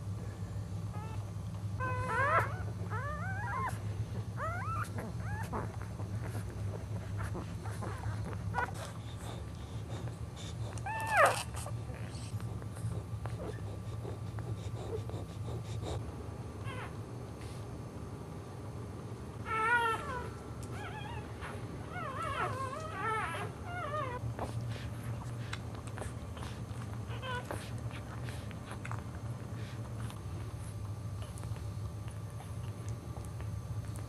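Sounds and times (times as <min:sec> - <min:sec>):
steady low hum: 0:00.0 - 0:34.0
puppies squeaking and whimpering: 0:01.8 - 0:10.0, 0:10.6 - 0:12.4, 0:19.5 - 0:24.8, 0:26.3 - 0:28.9.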